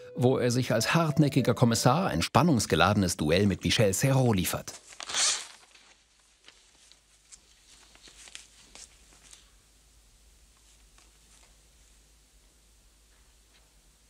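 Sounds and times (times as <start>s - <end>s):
faint clicks and rustles: 4.8s - 9.7s, 10.4s - 12.2s.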